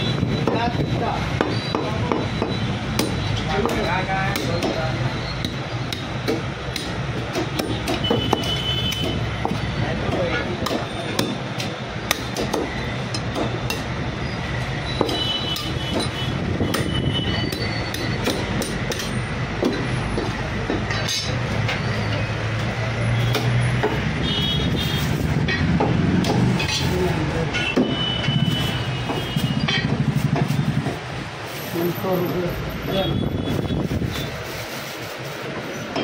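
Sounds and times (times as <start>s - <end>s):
street traffic: 0.0s - 36.0s
cleaver chopping meat: 1.4s - 14.0s, 15.0s - 20.9s, 23.2s - 24.1s, 25.6s - 26.6s.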